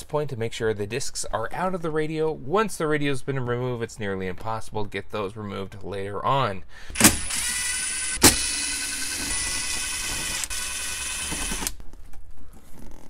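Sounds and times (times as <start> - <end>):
cordless drill spinning: 6.9 - 11.8.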